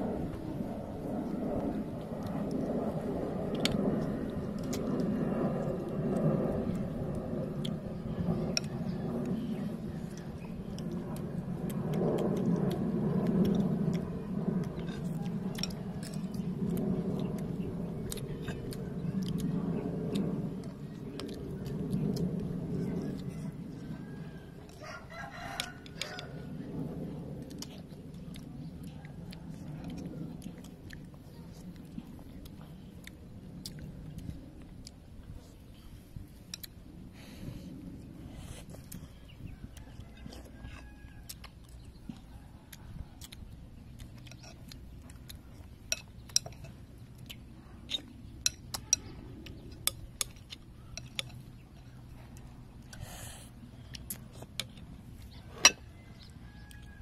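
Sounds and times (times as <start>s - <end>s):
steady low background noise: 0.0s - 57.0s
rooster crowing: 23.8s - 26.5s, 39.6s - 41.5s, 55.6s - 57.0s.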